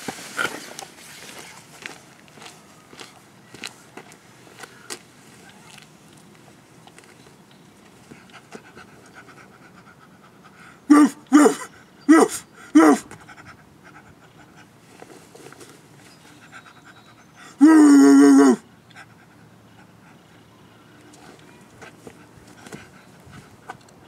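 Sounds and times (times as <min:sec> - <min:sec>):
man panting like a dog: 0:08.1 - 0:14.8, 0:16.3 - 0:20.5, 0:21.9 - 0:23.7
man imitating dog barks: 0:10.9 - 0:13.1, 0:17.6 - 0:18.6.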